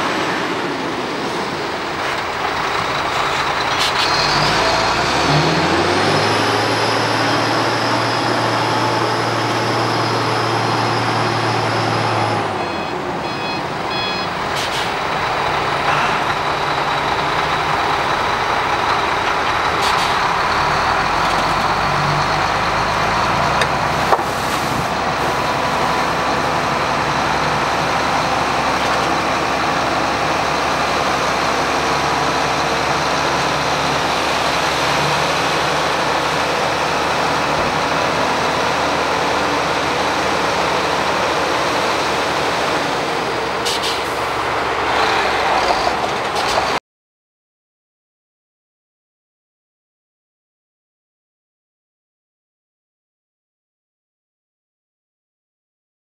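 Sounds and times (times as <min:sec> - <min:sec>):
diesel truck engine running: 0:00.0 - 0:46.8
reversing beeps: 0:06.9 - 0:17.0.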